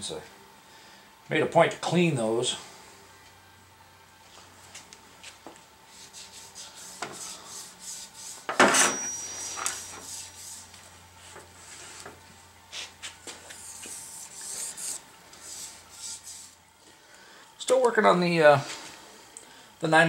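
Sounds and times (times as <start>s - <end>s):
sharp metal clank: 8.6s - 9.5s
metal rubbing and scraping: 13.4s - 16.6s.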